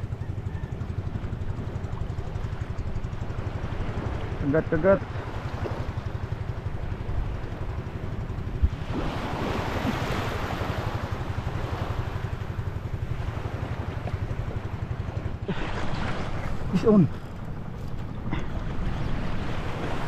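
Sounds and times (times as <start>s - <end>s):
water and waves washing: 0.0s - 20.0s
wind buffeting microphone: 5.1s - 20.0s.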